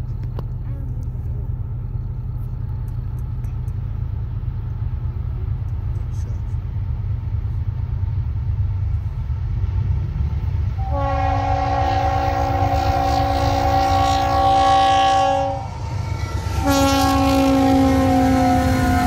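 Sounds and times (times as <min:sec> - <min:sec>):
train rumble: 0:00.0 - 0:19.0
locomotive horn blasts: 0:10.8 - 0:19.0.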